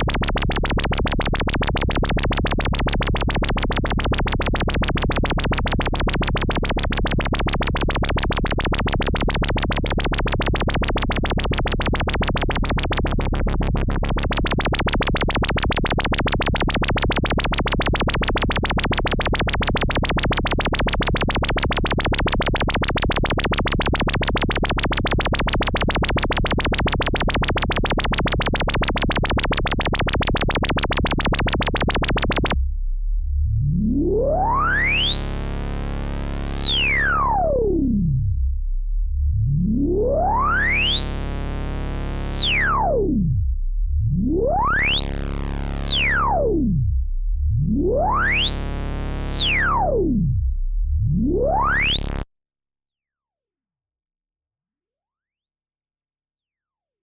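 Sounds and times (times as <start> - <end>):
low synthesizer bass note: 0.0 - 52.3
resonant synth tone sweeping: 31.0 - 38.1.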